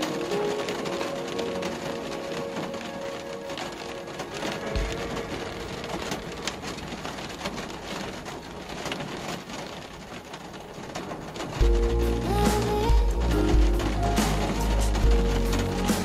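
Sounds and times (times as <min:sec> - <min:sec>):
rain pattering on a car: 0:00.0 - 0:16.0
music with heavy bass: 0:11.6 - 0:16.0.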